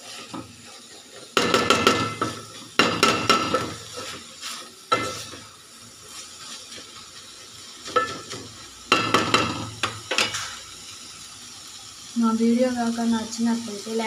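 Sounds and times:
faint frying sizzle: 0.0 - 14.0
wooden spatula knocking metal pot: 1.4 - 3.8, 8.9 - 10.3.

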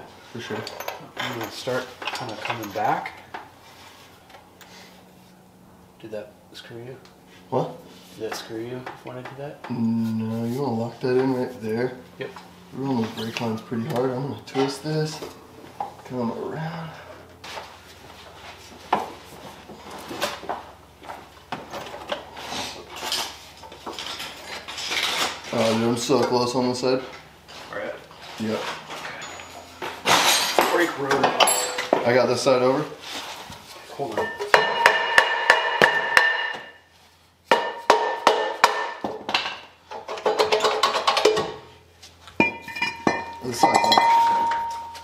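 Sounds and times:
metal parts clanking and ringing: 0.4 - 3.2, 29.0 - 32.0, 34.2 - 36.8, 42.4 - 45.0
metallic knocks and clanks: 34.2 - 36.8, 37.5 - 41.6, 42.4 - 45.0.

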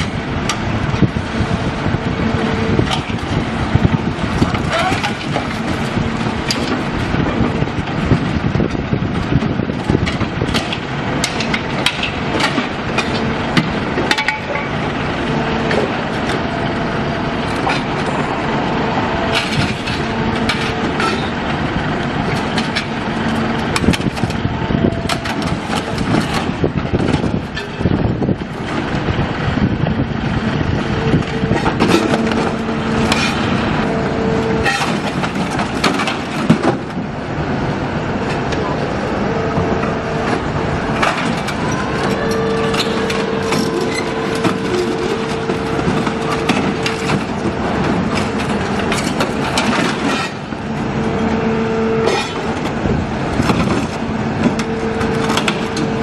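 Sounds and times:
excavator engine and hydraulics: 0.0 - 56.0
metal tearing and crushing: 40.8 - 50.6.

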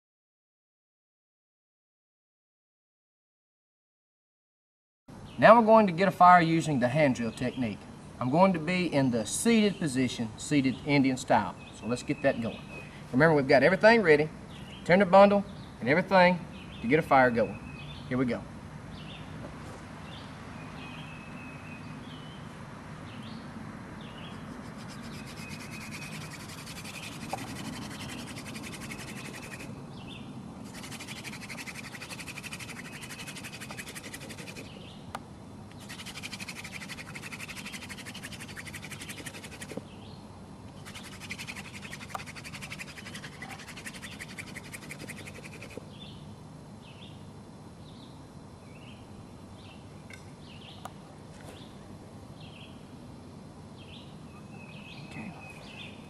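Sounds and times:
birds chirping faintly: 5.1 - 53.0, 53.7 - 56.0
wood grinding on wood: 24.4 - 29.7, 30.6 - 34.7, 35.8 - 39.8, 40.8 - 45.8.

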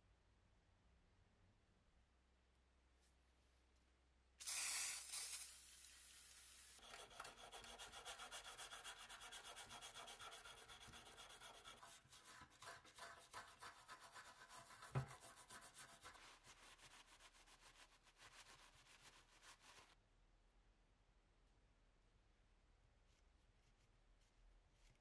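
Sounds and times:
toothbrush scrubbing metal: 6.8 - 20.0
knock: 14.9 - 15.2.

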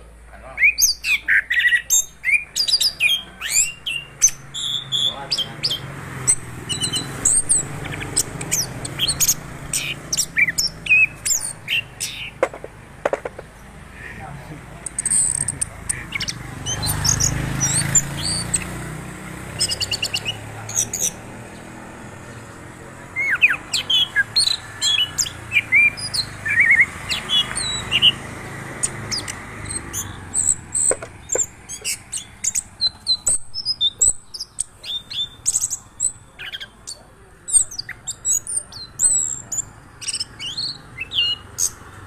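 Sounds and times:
thrush singing: 1.0 - 42.0.

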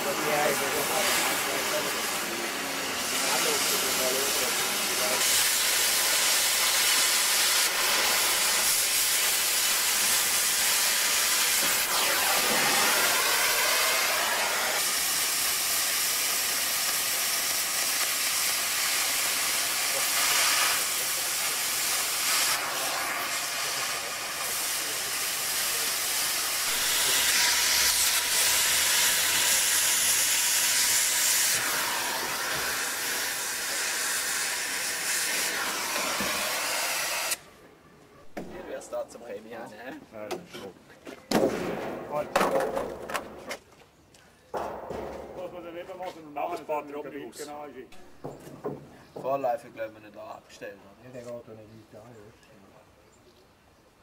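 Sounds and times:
cutting torch hissing: 0.0 - 37.4.

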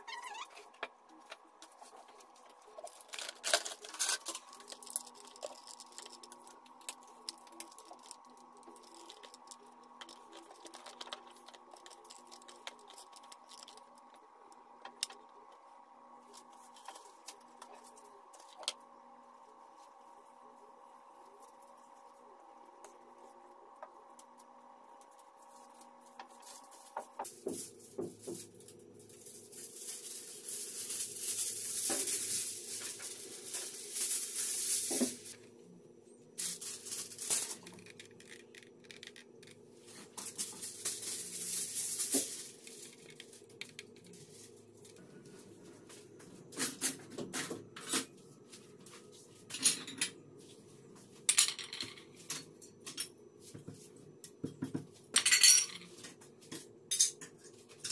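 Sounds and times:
aluminium foil crinkling: 1.2 - 14.2, 24.2 - 35.5, 36.4 - 45.0.

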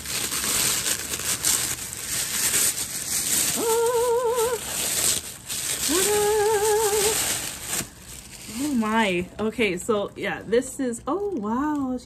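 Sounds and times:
tissue paper rustling: 0.0 - 10.5
woman humming: 3.5 - 4.6, 5.8 - 7.2.

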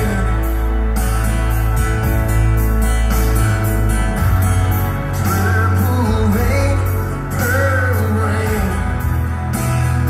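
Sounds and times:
man singing: 0.0 - 1.0, 5.2 - 10.0
rock band playing: 0.0 - 10.0.

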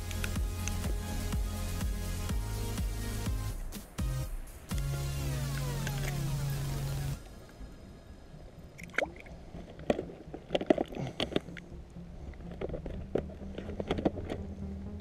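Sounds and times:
water splashing and sloshing: 8.7 - 14.5.

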